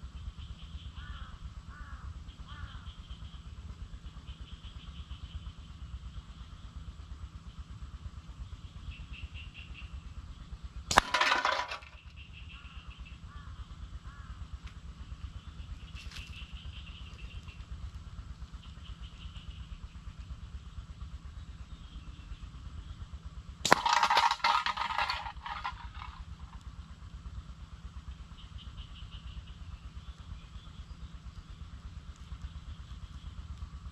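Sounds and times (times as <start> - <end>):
can tumbling across gravel: 10.9 - 12.0, 23.7 - 26.5
steel ball clanking on can: 10.9 - 12.0, 23.7 - 26.5.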